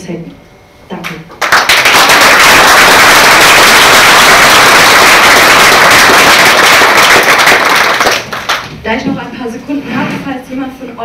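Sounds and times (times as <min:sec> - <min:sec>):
audience applauding: 0:01.4 - 0:08.7.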